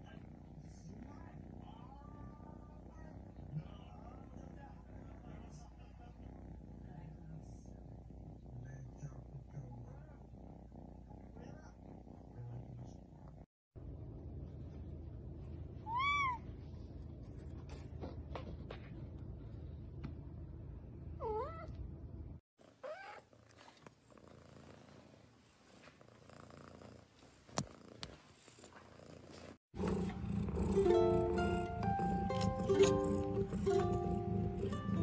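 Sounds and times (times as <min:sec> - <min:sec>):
cat meowing: 0:15.9 - 0:16.4, 0:22.8 - 0:23.2.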